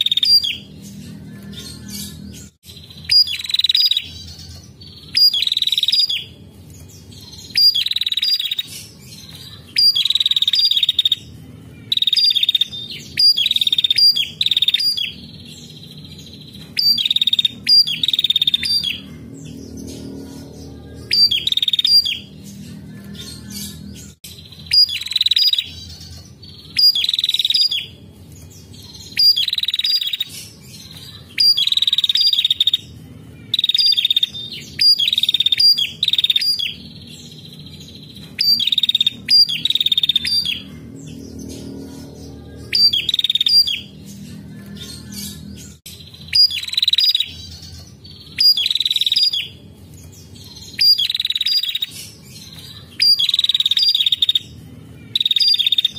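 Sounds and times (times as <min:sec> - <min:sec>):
bird trilled calls: 0:07.4 - 0:08.8, 0:15.9 - 0:19.2, 0:29.0 - 0:30.3, 0:31.4 - 0:36.9, 0:38.4 - 0:41.2, 0:41.8 - 0:44.0, 0:50.7 - 0:52.0, 0:53.0 - 0:55.9.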